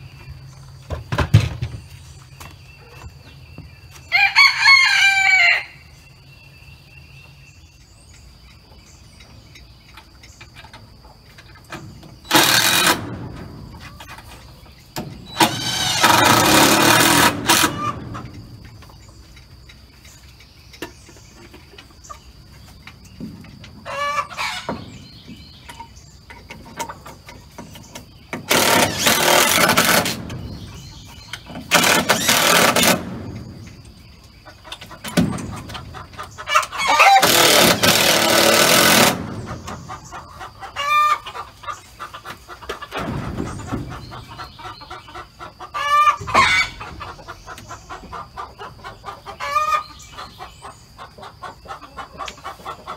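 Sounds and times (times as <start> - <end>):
chickens clucking: 0.0 - 52.9
cordless drill driving screws: 12.3 - 13.0.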